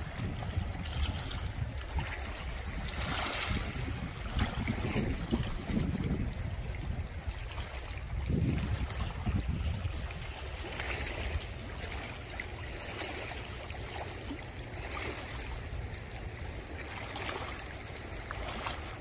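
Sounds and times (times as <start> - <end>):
wind rumbling on microphone: 0.0 - 19.0
river water rushing: 6.8 - 19.0.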